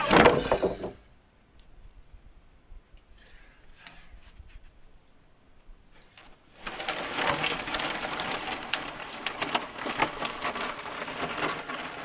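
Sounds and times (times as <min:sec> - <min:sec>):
rollers crunching over stony dirt: 0:05.9 - 0:12.0.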